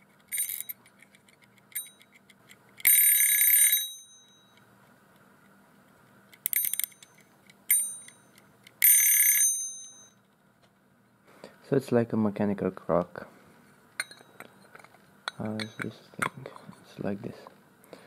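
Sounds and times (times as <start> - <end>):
timer alarm bell ringing: 0.3 - 0.8, 2.8 - 4.6, 6.5 - 10.2.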